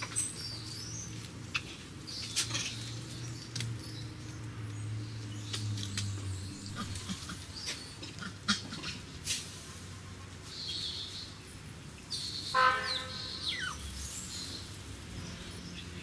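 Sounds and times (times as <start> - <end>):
high-pitched animal call: 12.6 - 13.9.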